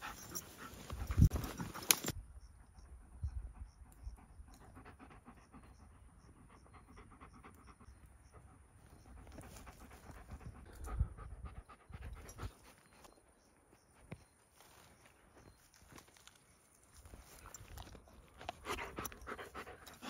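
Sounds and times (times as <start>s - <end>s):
dog panting: 0.0s - 1.8s, 3.0s - 12.9s, 17.8s - 20.0s.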